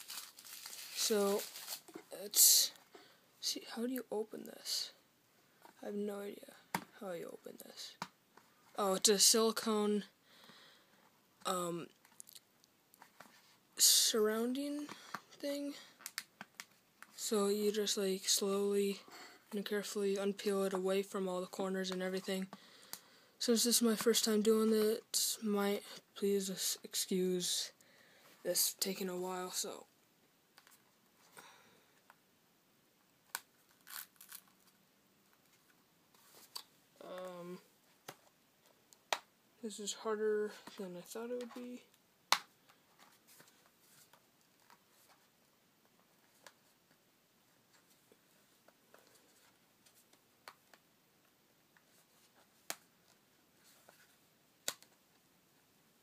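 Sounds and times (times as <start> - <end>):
soft rustles: 0.0 - 2.9, 33.6 - 38.8, 42.6 - 50.2, 51.8 - 54.3.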